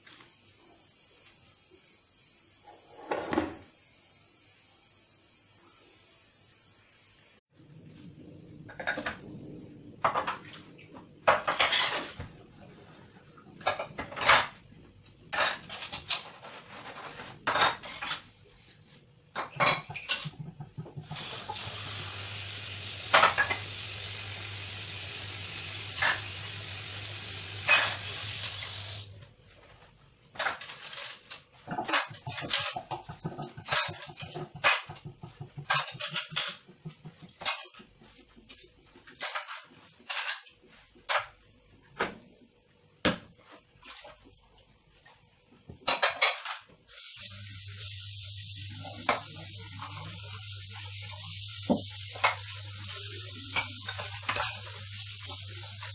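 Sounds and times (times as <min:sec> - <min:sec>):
tap water running: 0:19.9 - 0:29.1, 0:47.1 - 0:55.9
dishes and cutlery clinking: 0:30.4 - 0:34.9.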